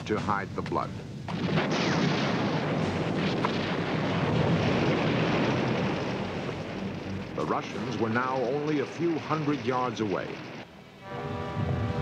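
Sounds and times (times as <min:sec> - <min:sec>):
rumble of artillery and explosions: 0:00.0 - 0:12.0
faint gunfire cracks: 0:01.3 - 0:05.8.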